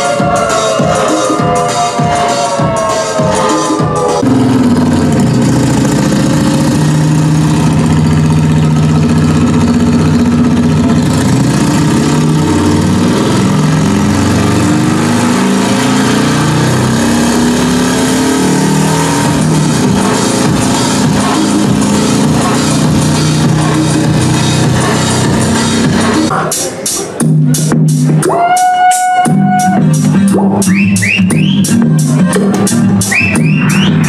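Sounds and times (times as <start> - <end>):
buzzing synthesizer bass drone: 0.0 - 26.3.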